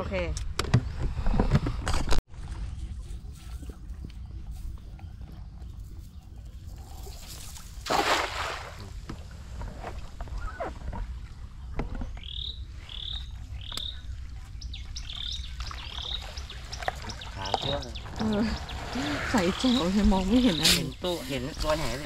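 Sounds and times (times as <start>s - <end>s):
net splashing into water: 7.4s - 8.9s.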